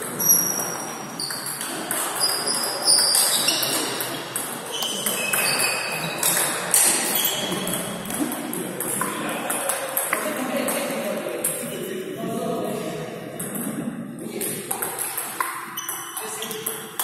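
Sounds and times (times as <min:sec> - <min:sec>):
ball clicking on bats and table: 0:00.4 - 0:10.9, 0:14.4 - 0:17.0.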